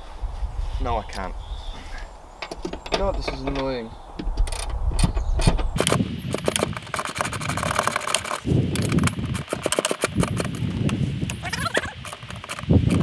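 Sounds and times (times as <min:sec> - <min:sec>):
hand tool clicks and knocks: 0:02.4 - 0:13.0.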